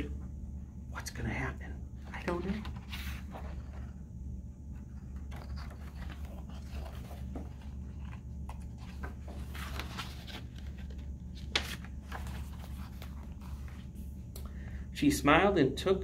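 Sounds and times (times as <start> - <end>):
steady low hum: 0.0 - 16.0
paper pages rustling: 2.0 - 4.0, 4.8 - 14.2.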